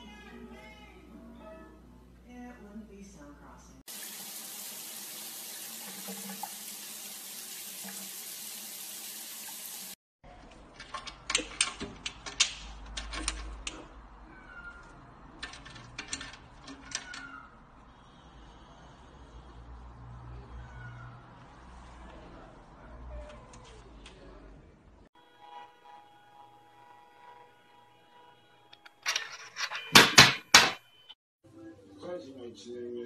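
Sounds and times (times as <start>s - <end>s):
key clicking and rattling in lock: 10.7s - 13.9s, 15.4s - 17.3s.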